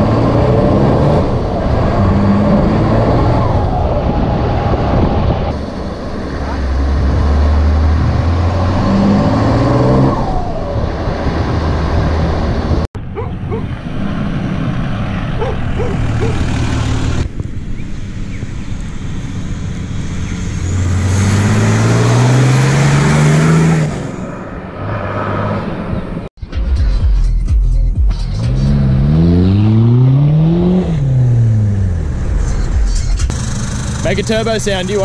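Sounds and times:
vehicle engine accelerating: 0.0 - 26.3, 27.8 - 35.0
diesel truck driving past: 4.6 - 26.2.

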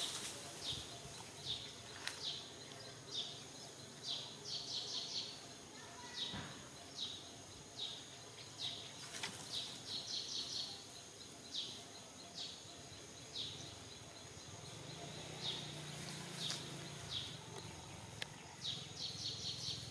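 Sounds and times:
bird chirping: 0.0 - 19.9
outdoor background noise: 0.0 - 19.9.

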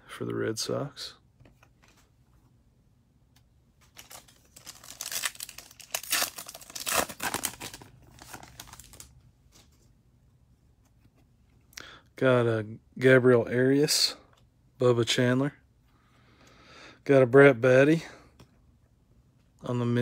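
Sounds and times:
foil wrapper tearing and crinkling: 4.0 - 9.1.

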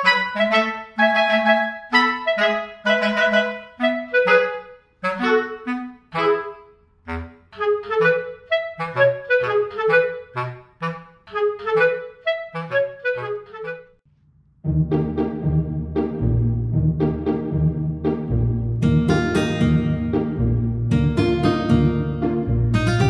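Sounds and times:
bouncy tune with plucky bass: 14.6 - 23.0.

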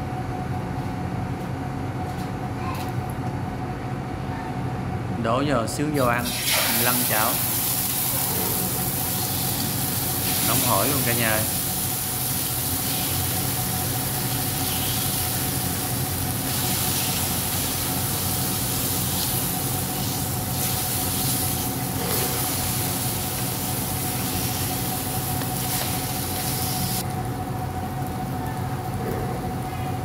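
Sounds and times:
constant hum: 0.0 - 30.0
chicken sizzling in oil: 6.3 - 27.0.

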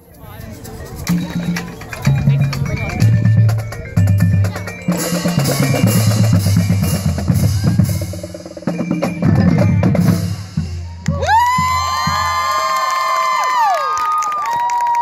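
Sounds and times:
marching bass drums: 0.9 - 12.7
crowd cheering: 10.7 - 15.0.

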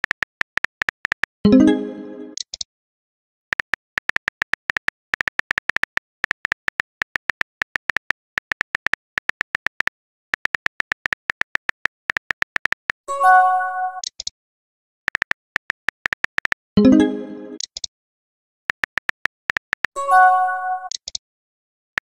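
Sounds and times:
phone keyboard key clicks: 0.0 - 1.3, 3.5 - 13.0, 15.1 - 16.6, 18.7 - 20.0.

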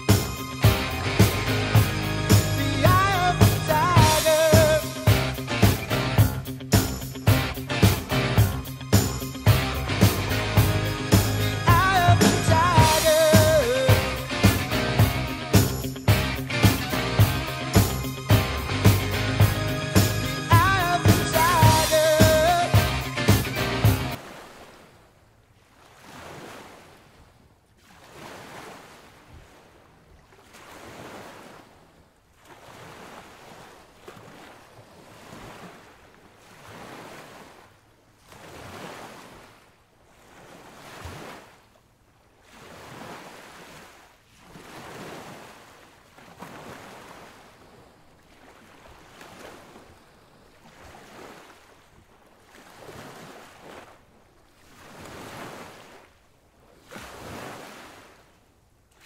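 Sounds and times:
sea surf washing in: 0.0 - 25.0, 42.4 - 56.1, 56.8 - 58.3.

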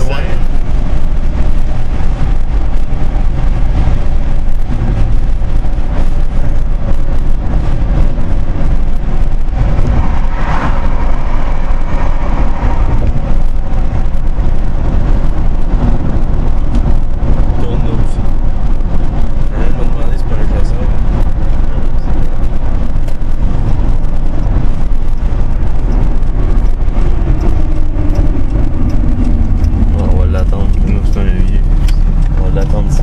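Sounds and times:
car road noise: 0.0 - 33.0.

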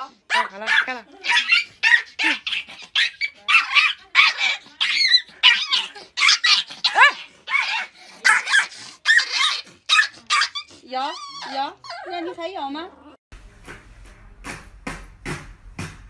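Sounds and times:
puppy yapping: 0.3 - 12.2.

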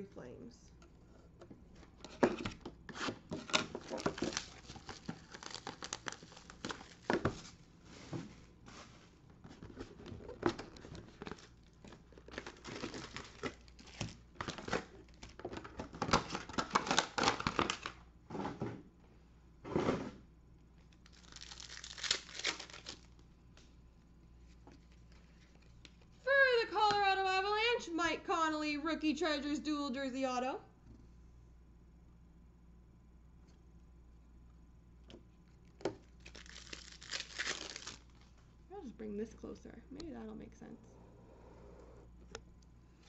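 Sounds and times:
wrappers tearing and crinkling: 3.4 - 7.6, 9.6 - 18.0, 20.9 - 23.2, 36.0 - 38.3.

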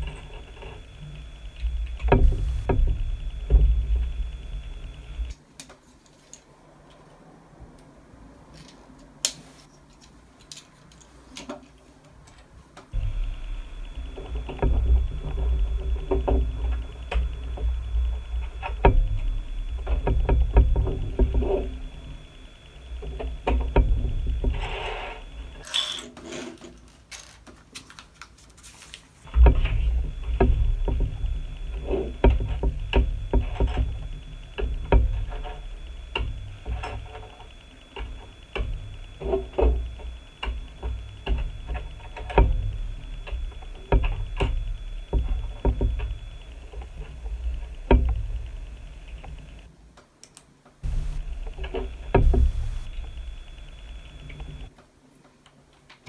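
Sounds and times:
low rumble with high whine: 0.0 - 5.4, 13.0 - 25.6, 29.3 - 49.7, 50.8 - 54.7.

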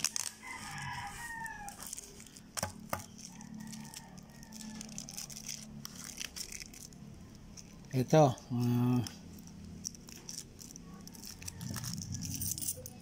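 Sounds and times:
plastic bags clicking: 0.0 - 13.0
rooster crowing: 0.1 - 2.1, 3.0 - 5.3, 11.0 - 12.7.

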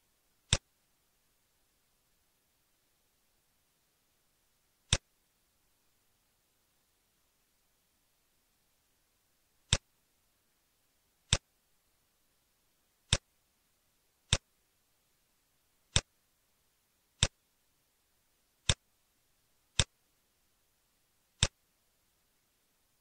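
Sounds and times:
computer mouse clicks: 0.5 - 0.7, 4.9 - 5.1, 9.7 - 9.9, 13.1 - 13.3, 14.3 - 14.5.

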